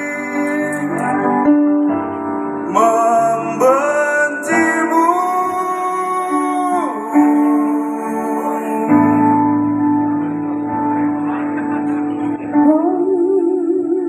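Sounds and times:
singers holding long notes: 0.0 - 1.9, 2.6 - 10.6.

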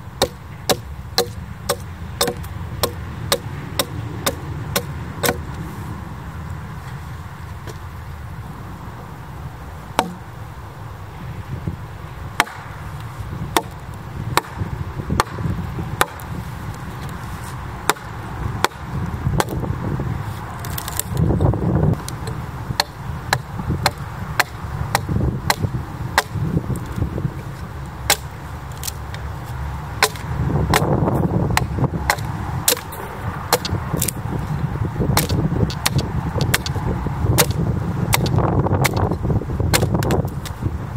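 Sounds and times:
axe chopping wood: 0.2 - 5.6, 10.0 - 10.2, 12.4 - 12.6, 13.5 - 16.3, 17.8 - 19.6, 22.0 - 26.4, 28.1 - 29.0, 30.0 - 34.2, 35.1 - 40.6.

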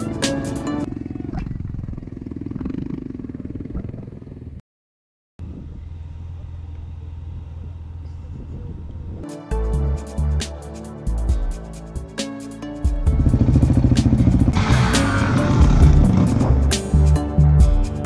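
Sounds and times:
quad bike engine rumbling: 0.0 - 4.6, 5.4 - 9.2, 13.0 - 17.0
quad bike idling hum: 0.8 - 4.6, 5.4 - 9.2, 13.1 - 16.6.

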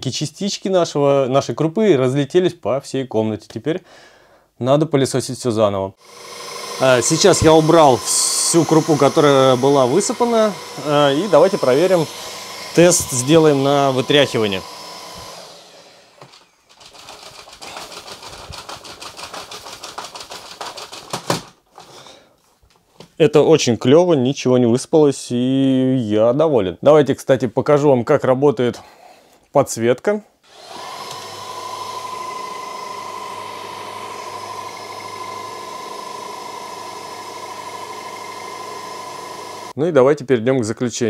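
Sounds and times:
vacuum cleaner running: 6.0 - 16.6, 30.5 - 39.8.

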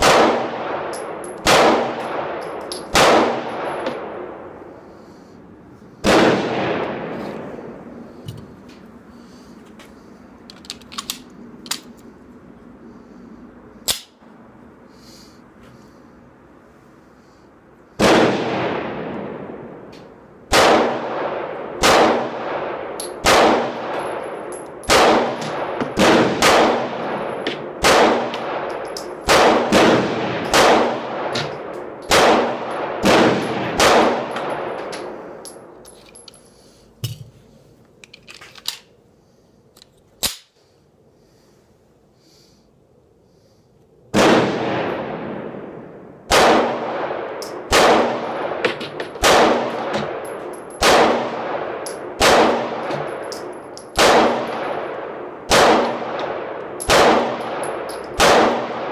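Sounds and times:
pistol shots echoing: 0.0 - 4.5, 6.0 - 7.9, 18.0 - 19.7, 20.5 - 35.3, 44.1 - 58.9
small metallic clicks: 10.4 - 12.1, 34.3 - 38.9, 39.7 - 40.6.

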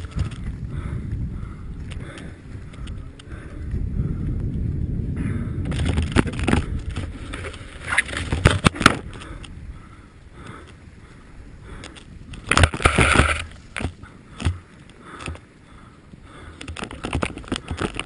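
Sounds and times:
snow scraping and crunching: 7.0 - 8.8.

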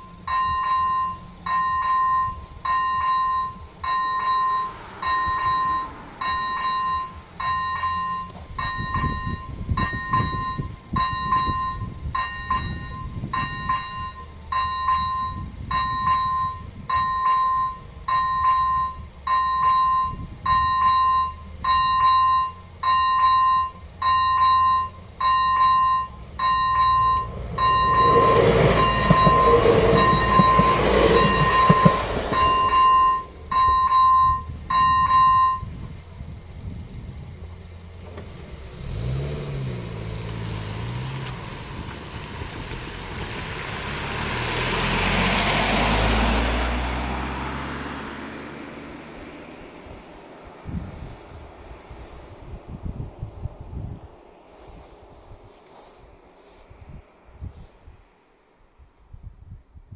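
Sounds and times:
level crossing warning bell: 0.0 - 35.8
car driving over crossing: 0.0 - 58.4
diesel railcar passing: 0.0 - 58.6.

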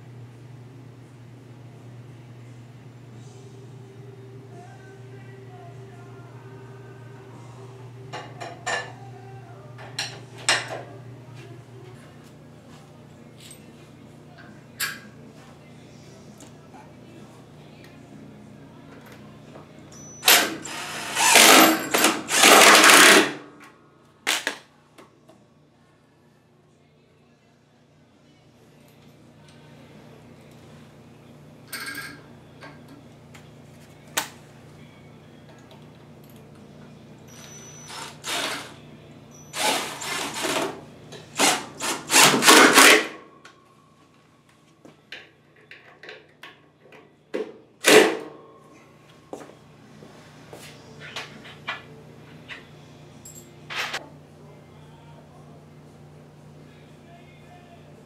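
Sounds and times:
cordless drill driving screw: 20.3 - 23.2.

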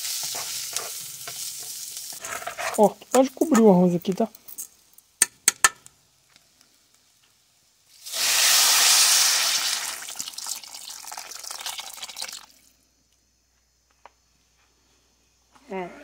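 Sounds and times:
water sizzling in hot oil: 0.0 - 2.9, 6.8 - 12.7.

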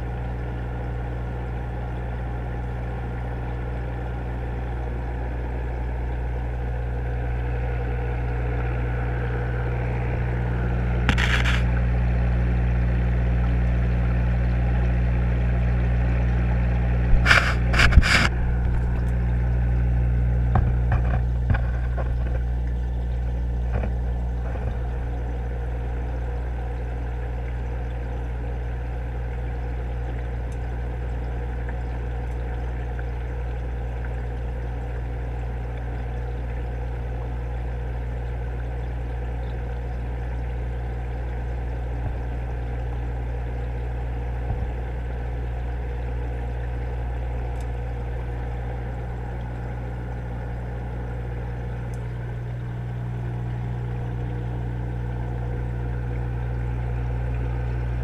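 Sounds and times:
machinery hum underwater: 0.0 - 58.0.

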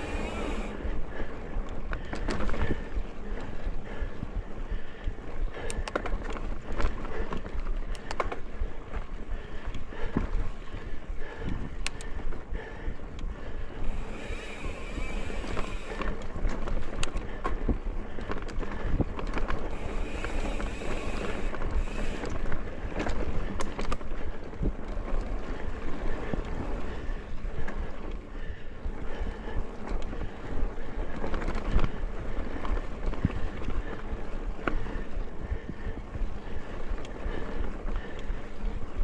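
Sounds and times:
bike knocking and rattling: 0.0 - 39.0
bike tyres rolling on dirt trail: 0.0 - 39.0.

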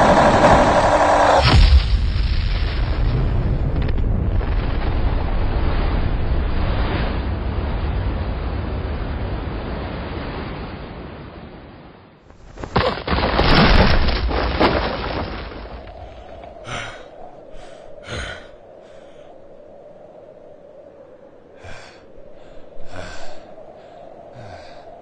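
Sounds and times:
explosion rumble: 0.0 - 9.6
body crashing into ground: 12.4 - 16.5
gasping breaths: 16.2 - 19.4, 21.6 - 25.0.

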